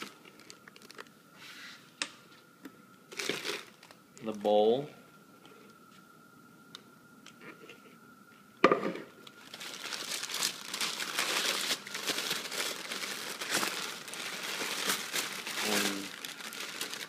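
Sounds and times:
packing wrap crinkling: 0.0 - 1.1, 3.1 - 4.5, 9.3 - 17.0.

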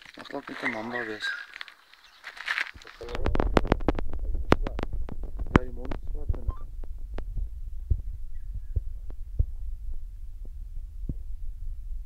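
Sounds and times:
faint clicks and ticks: 1.5 - 8.0
low outdoor rumble: 2.8 - 12.0.

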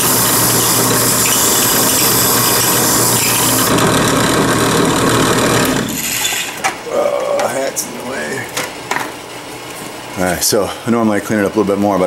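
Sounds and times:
wire wheel scrubbing steel blade: 0.0 - 6.5
bench motor humming: 0.0 - 6.6.

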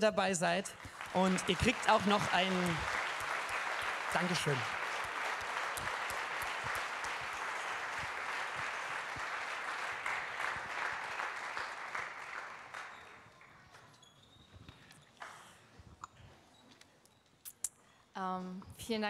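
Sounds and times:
crowd applauding: 0.6 - 13.8.

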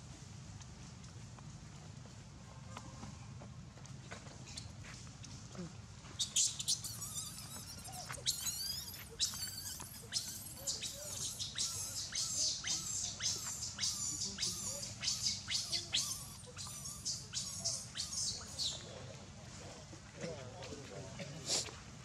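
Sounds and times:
baby monkey squeaking: 6.2 - 18.8.

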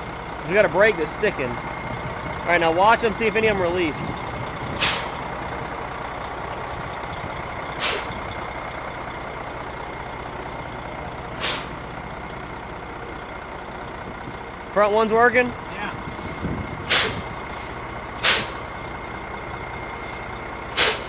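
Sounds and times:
diesel engine idling: 0.0 - 21.0
air brakes hissing: 4.7 - 5.2, 7.8 - 8.3, 10.3 - 10.8, 11.4 - 12.0, 16.1 - 18.8, 19.8 - 21.0.

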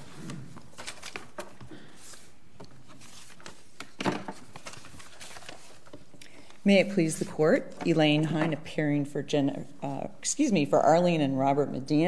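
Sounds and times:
papers rustling: 0.0 - 8.6.

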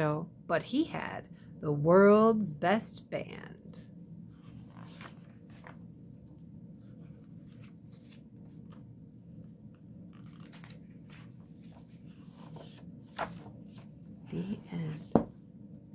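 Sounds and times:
low room hum: 0.0 - 15.9
book pages turning: 4.4 - 5.9, 6.8 - 15.3.

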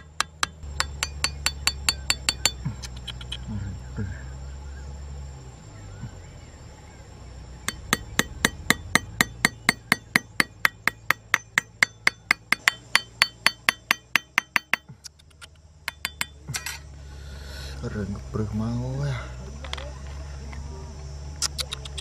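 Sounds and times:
knife tapping metal hook: 0.0 - 2.6, 7.7 - 14.9, 15.9 - 16.7.

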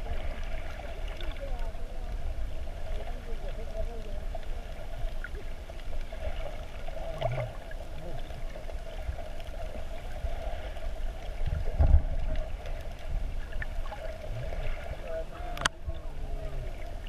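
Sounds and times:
underwater rumble of moving water: 0.0 - 17.0
faint clicks: 15.5 - 16.1.

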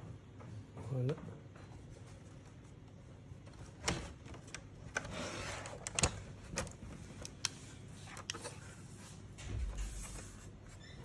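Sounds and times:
plastic sliding scrape: 5.0 - 6.0.

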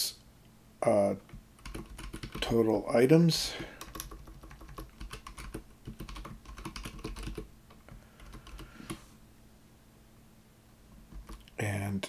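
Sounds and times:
typing on computer keyboard: 1.6 - 2.5, 3.7 - 8.7, 11.1 - 11.5.

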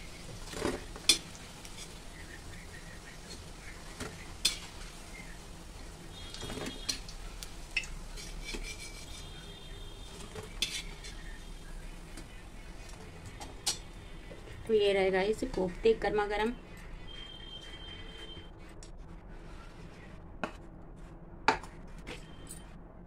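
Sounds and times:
hot oil sizzling: 0.0 - 16.2.

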